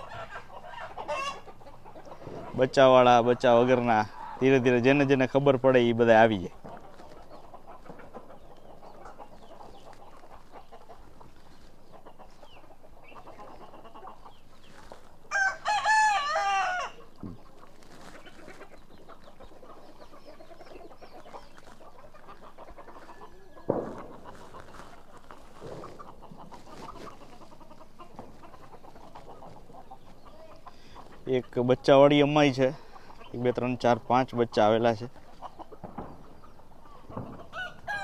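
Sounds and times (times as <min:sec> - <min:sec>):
chickens clucking: 0:00.0 - 0:38.0
rooster crowing: 0:15.3 - 0:17.1, 0:37.5 - 0:38.0.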